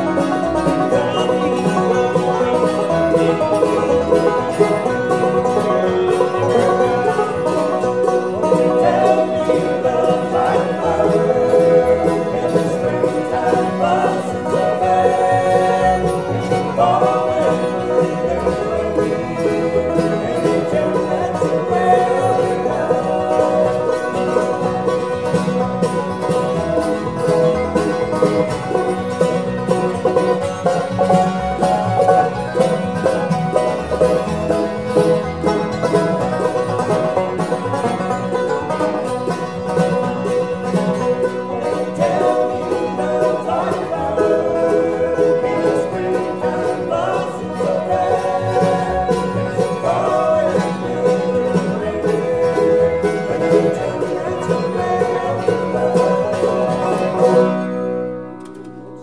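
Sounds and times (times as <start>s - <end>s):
banjo rolls: 0.0s - 59.0s
bluegrass band playing: 0.0s - 59.0s
fiddle: 0.0s - 59.0s
mandolin: 0.0s - 59.0s
strummed acoustic guitars: 0.0s - 59.0s.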